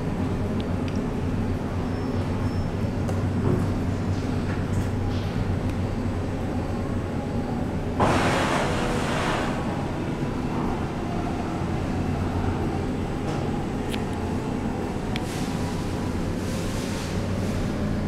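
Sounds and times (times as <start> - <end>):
lift doors hissing open: 8.0 - 9.9.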